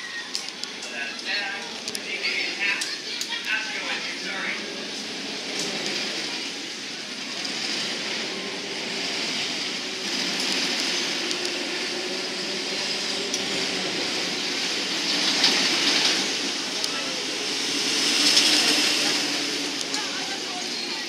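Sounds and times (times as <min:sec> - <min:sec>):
roller coaster wheels rumbling on rail: 0:00.0 - 0:21.0.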